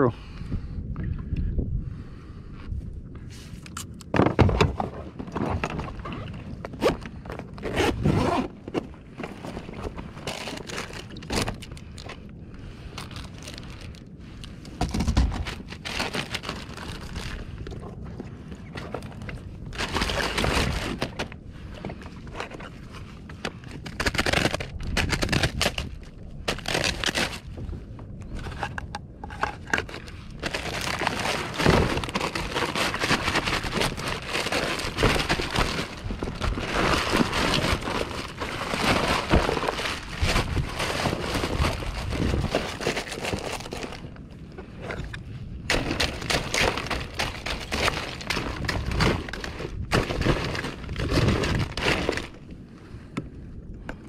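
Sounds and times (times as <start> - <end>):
plastic bag crinkling: 10.2 - 11.8, 13.0 - 14.0, 15.4 - 17.5, 19.7 - 21.2, 29.4 - 44.1, 45.7 - 52.4.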